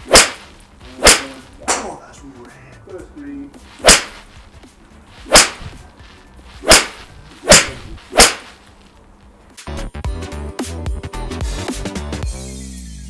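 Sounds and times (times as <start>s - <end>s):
golf clubs striking balls: 0.0s - 2.0s, 3.6s - 8.6s
background music: 0.0s - 13.0s.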